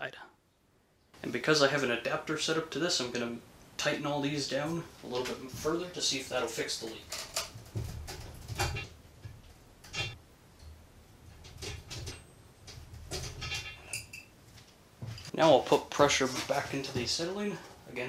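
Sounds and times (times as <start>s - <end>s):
metallic ring: 13.1s - 14.4s.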